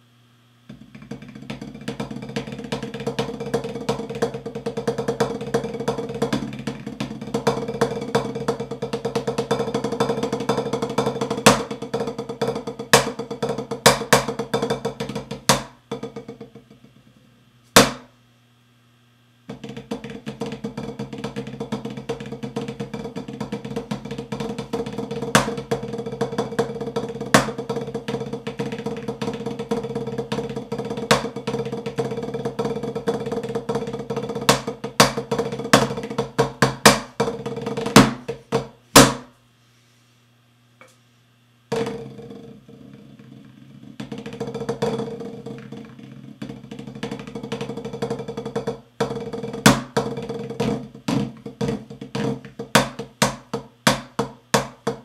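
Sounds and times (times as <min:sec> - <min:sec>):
marching snare drum rolls: 0:19.6 - 0:39.3.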